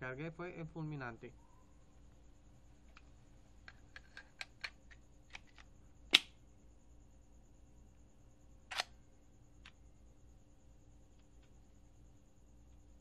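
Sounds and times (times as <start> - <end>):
pistol mechanism clicks: 4.0 - 6.4, 8.7 - 9.0.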